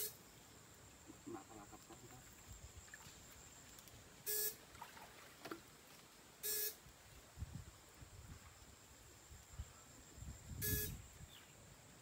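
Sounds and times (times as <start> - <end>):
short electric buzzes: 10.6 - 11.0.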